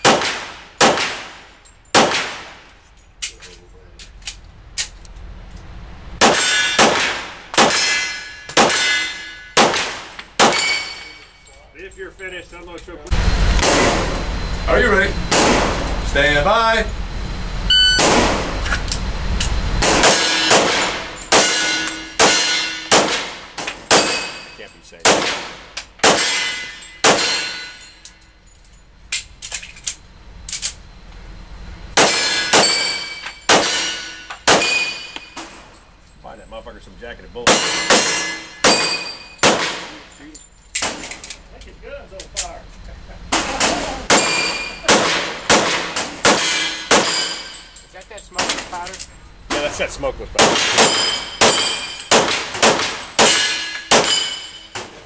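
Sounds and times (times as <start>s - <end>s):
handgun shots: 0.0s - 1.3s, 2.0s - 2.5s, 6.2s - 9.0s, 9.6s - 10.8s, 19.8s - 24.4s, 25.0s - 27.5s, 32.0s - 35.0s, 37.5s - 39.9s, 43.6s - 47.4s, 50.4s - 54.9s
clicks and clanks: 2.6s - 5.7s, 25.8s - 31.2s, 39.8s - 42.6s, 47.3s - 49.7s
metallic ringing clang: 7.7s - 9.6s, 10.5s - 12.4s, 20.0s - 22.9s, 24.0s - 24.8s, 26.2s - 28.9s, 32.0s - 35.9s, 37.5s - 41.2s, 43.4s - 44.9s, 46.4s - 49.1s, 50.7s - 52.1s, 53.2s - 54.9s.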